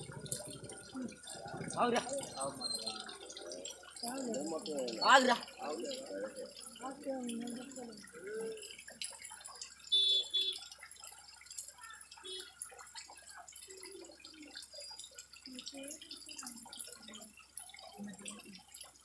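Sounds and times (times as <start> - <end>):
people talking indistinctly: 0.0 - 8.9.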